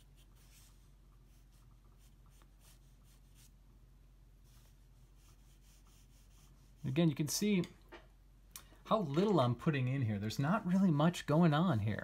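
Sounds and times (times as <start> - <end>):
pencil scratching on paper: 0.0 - 3.5, 4.4 - 7.1
low steady hum: 0.0 - 12.0.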